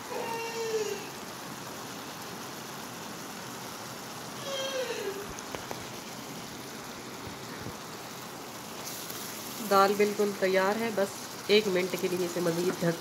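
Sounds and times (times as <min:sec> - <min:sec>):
food simmering in oil: 0:00.0 - 0:13.0
cat meowing: 0:00.1 - 0:01.1, 0:04.4 - 0:05.3.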